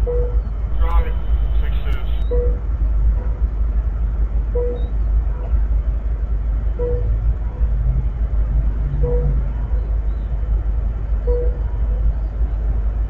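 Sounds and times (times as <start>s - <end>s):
short beep: 0.7s - 2.3s.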